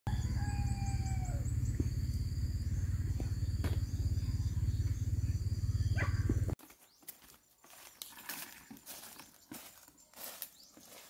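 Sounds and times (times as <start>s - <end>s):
rooster crowing: 0.1s - 1.7s
low throbbing rumble: 0.1s - 6.6s.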